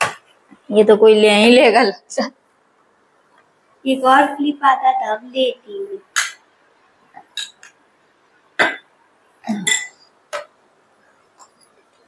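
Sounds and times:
metal spoon clinking on glass bowl: 0:09.6 - 0:10.1.

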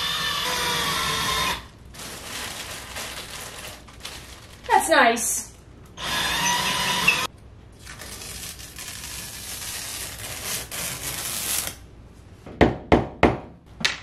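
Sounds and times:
power drill boring into wall: 0:00.0 - 0:01.6, 0:06.0 - 0:07.3.

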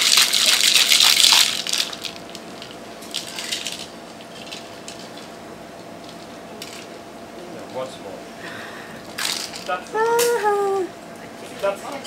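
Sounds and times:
ice rattling in cocktail shaker: 0:00.0 - 0:05.1.

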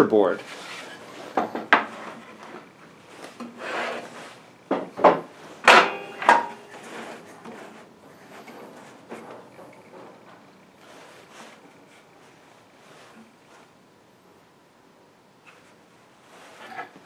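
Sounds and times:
wooden board scraping on metal: 0:03.4 - 0:04.4, 0:05.7 - 0:08.8.

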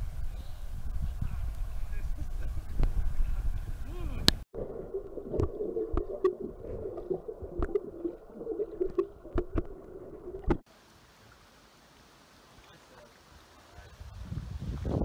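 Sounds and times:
muffled underwater rumble: 0:00.1 - 0:10.6
underwater clicks and knocks: 0:05.0 - 0:10.6.

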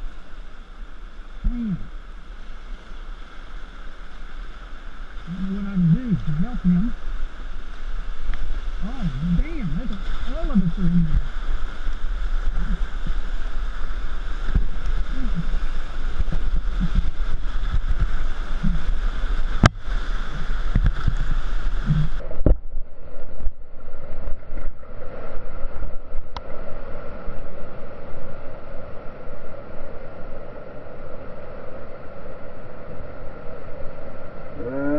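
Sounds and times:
river rapid rushing: 0:00.0 - 0:22.4.

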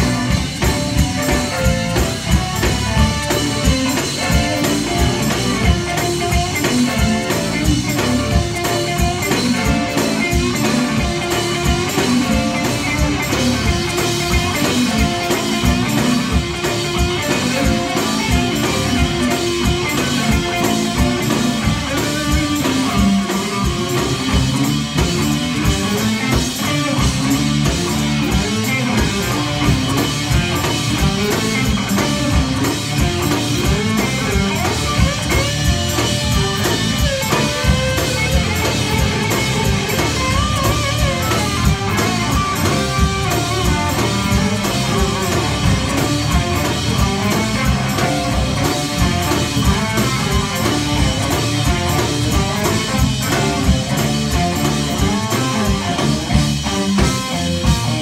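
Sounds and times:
bass guitar: 0:00.0 - 0:58.0
drum kit beat: 0:00.0 - 0:58.0
electric guitars: 0:00.0 - 0:58.0
keyboard: 0:00.0 - 0:58.0.

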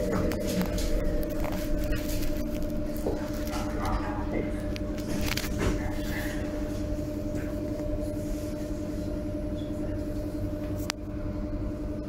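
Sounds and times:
subway train rumbling: 0:00.0 - 0:12.0.

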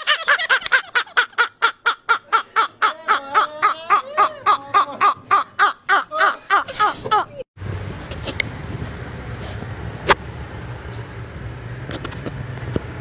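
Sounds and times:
men laughing hard: 0:00.0 - 0:07.5.

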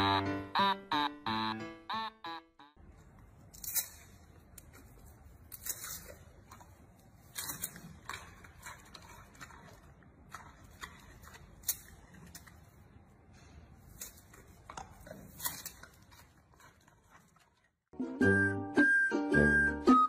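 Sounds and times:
panda chewing bamboo: 0:04.5 - 0:17.9.

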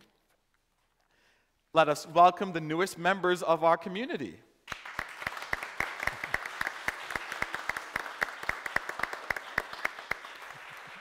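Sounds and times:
congregation applauding: 0:04.7 - 0:11.0.

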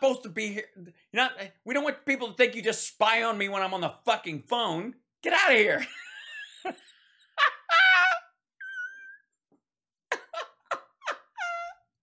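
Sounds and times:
man laughing hysterically: 0:05.8 - 0:09.2, 0:10.1 - 0:12.0.

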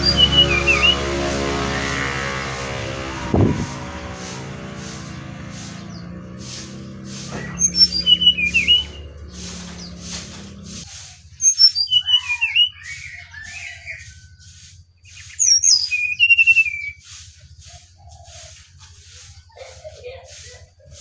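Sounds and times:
bird singing whistles: 0:00.0 - 0:01.0, 0:07.4 - 0:10.0, 0:11.4 - 0:14.2, 0:15.1 - 0:17.0
low hum: 0:00.0 - 0:10.8
pulsing hiss: 0:00.0 - 0:11.2.

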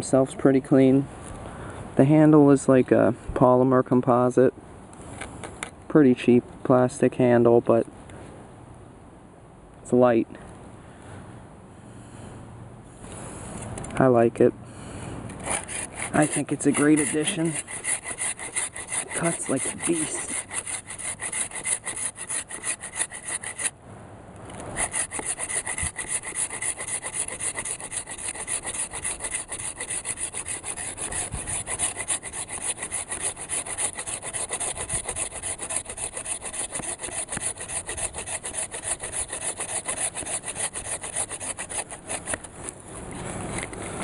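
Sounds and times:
saw cutting through log: 0:15.3 - 0:23.7, 0:24.7 - 0:43.8.

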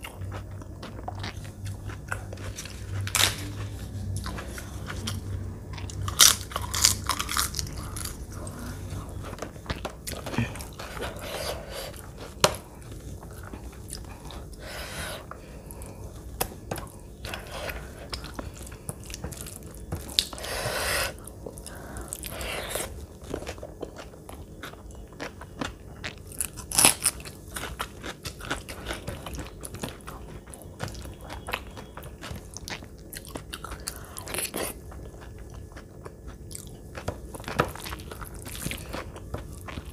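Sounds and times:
crunching bites of crisp food: 0:00.0 - 0:11.4, 0:15.8 - 0:39.9
chewing: 0:00.0 - 0:39.9.

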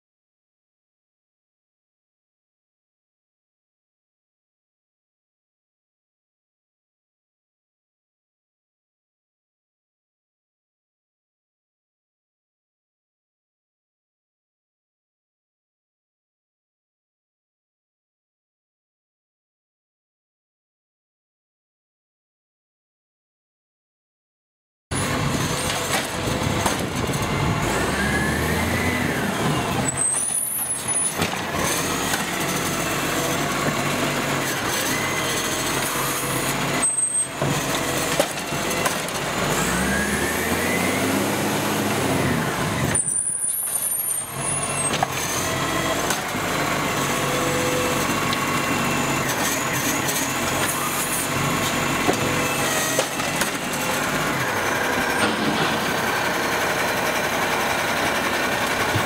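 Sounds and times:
garbage truck engine revving: 0:24.9 - 0:59.0
hydraulic arm lifting bin: 0:24.9 - 0:59.0.

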